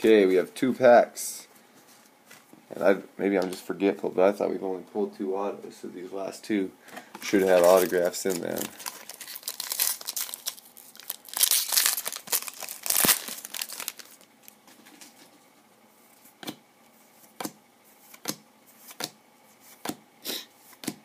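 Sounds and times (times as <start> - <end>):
foil wrapper crinkling and tearing: 7.4 - 14.6.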